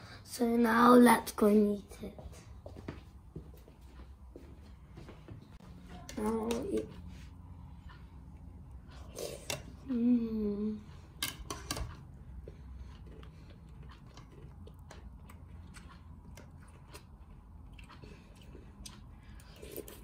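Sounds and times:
child humming: 0:09.8 - 0:10.8
child chewing crunchy cereal: 0:10.8 - 0:20.0.

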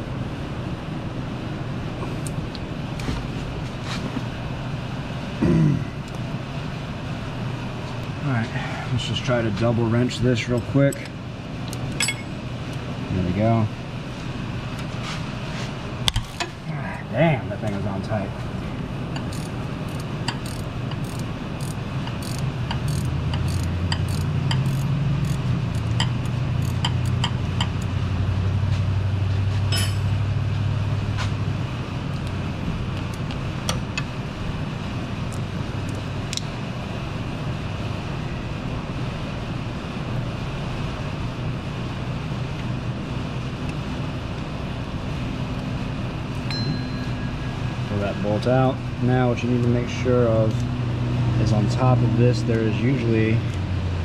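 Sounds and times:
steady low hum: 0:00.0 - 0:54.0
wrench clicking and ticking: 0:19.2 - 0:27.9.

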